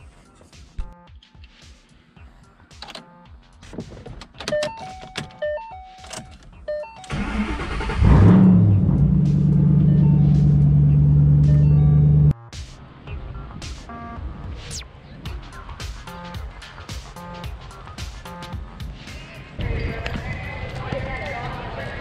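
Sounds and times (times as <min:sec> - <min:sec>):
car engine revving and idling: 0:07.1 - 0:12.4.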